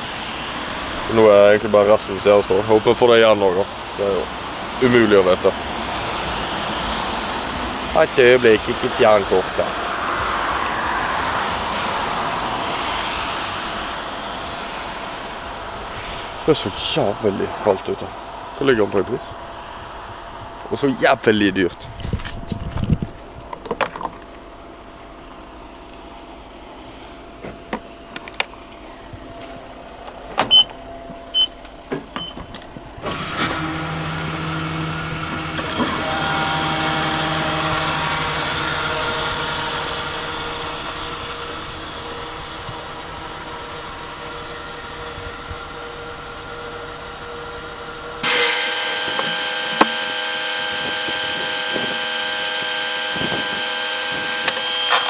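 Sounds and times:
fuel rushing through nozzle: 9.4 - 16.9, 48.2 - 55.0
electric motor whine: 33.0 - 42.2, 48.2 - 55.0.

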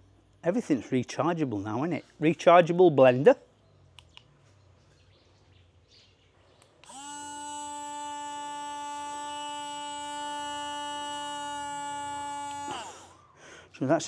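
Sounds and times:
blender motor whine: 6.8 - 13.3.

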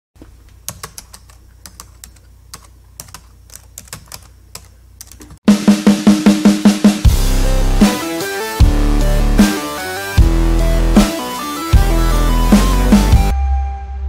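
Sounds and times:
music with steady beat: 5.5 - 13.4.

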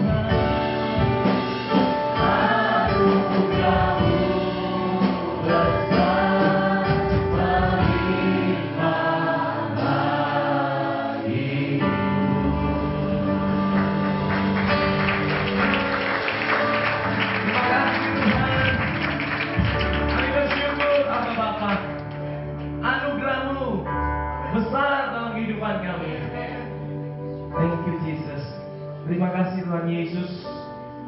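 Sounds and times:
guitar: 0.0 - 8.8, 11.9 - 24.5
worship song singers: 0.0 - 21.9
keyboard: 0.0 - 31.0.

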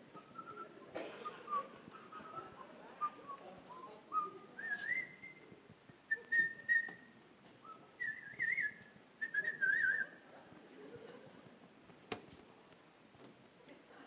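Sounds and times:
man whistling a tune: 6.1 - 7.0, 7.7 - 10.0.

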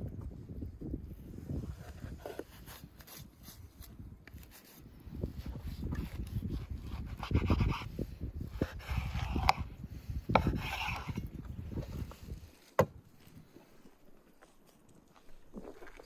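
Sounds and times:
knife sawing through fat: 8.6 - 9.6.

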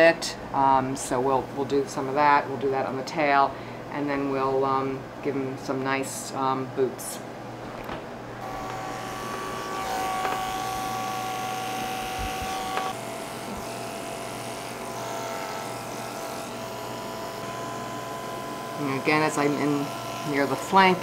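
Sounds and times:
electric clippers humming: 8.4 - 21.0.

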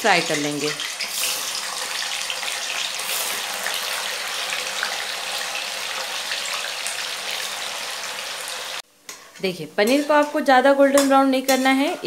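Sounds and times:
food deep-frying in oil: 0.0 - 8.8.

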